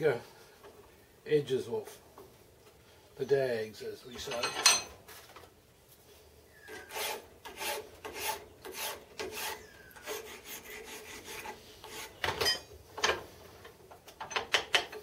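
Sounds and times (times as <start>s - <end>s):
file rasping on metal: 6.8s - 12.3s.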